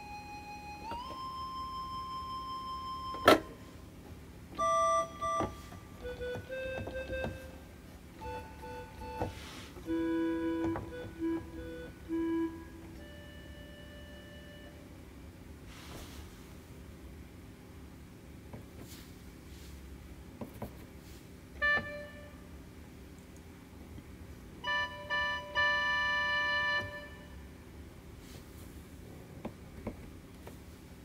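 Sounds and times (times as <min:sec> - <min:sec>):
electronic keyboard music: 0:00.0 - 0:03.6, 0:04.6 - 0:14.8, 0:24.6 - 0:27.4.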